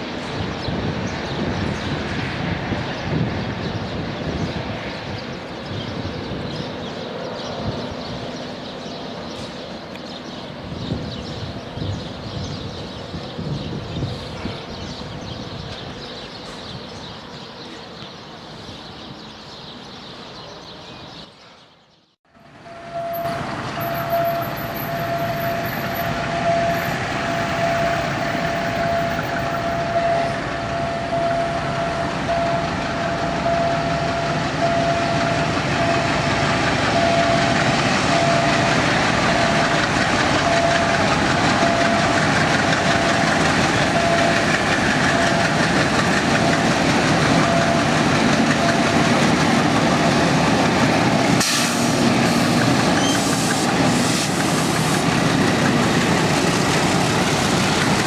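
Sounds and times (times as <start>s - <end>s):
train rumbling: 0.0s - 21.6s, 22.3s - 58.0s
locomotive engines humming: 22.4s - 58.0s
high ringing tone: 22.6s - 36.1s
wheels clacking over rail joints: 32.0s - 58.0s.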